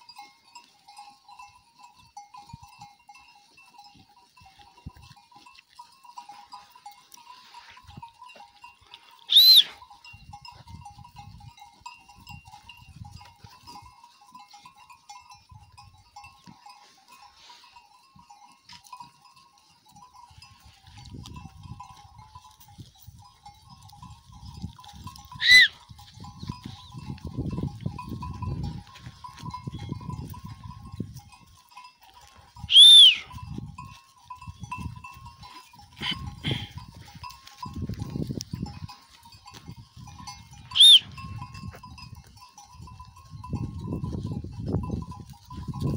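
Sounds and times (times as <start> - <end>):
flock bells jingling: 0.0 - 45.9
high-pitched whistle-like calls: 9.2 - 9.8, 25.4 - 25.8, 32.7 - 33.4, 40.7 - 41.2.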